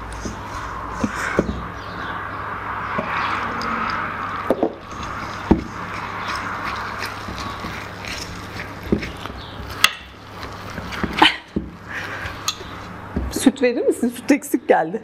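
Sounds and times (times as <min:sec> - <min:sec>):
whisk scraping metal bowl: 0:04.8 - 0:12.8.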